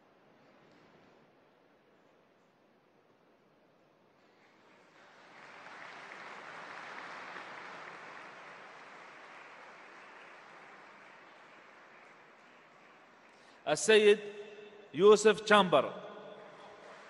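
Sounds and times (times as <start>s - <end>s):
large audience applauding: 4.4s - 14.1s, 16.5s - 17.0s.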